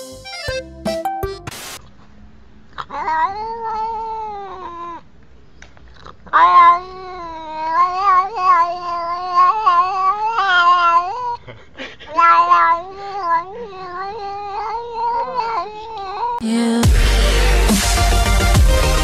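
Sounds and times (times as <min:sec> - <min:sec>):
cat meowing: 0:02.8 - 0:05.1, 0:06.3 - 0:11.4, 0:12.1 - 0:16.4.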